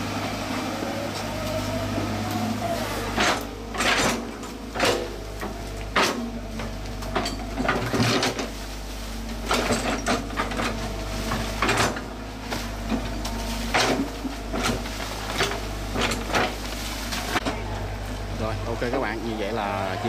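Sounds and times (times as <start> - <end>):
diesel engine humming: 0.0 - 20.0
metal clanks and knocks: 3.1 - 8.6, 9.4 - 17.6
bucket scraping soil: 7.9 - 17.4.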